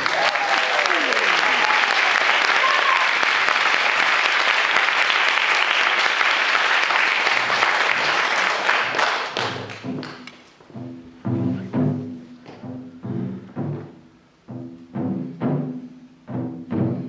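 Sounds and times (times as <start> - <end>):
audience applauding: 0.0 - 10.5
music with low notes: 9.7 - 17.0.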